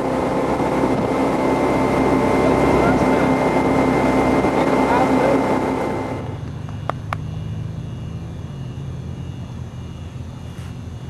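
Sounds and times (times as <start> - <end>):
water rushing in wake: 0.0 - 6.2
boat engine running at speed: 0.0 - 11.0
steady low hum: 0.0 - 11.0.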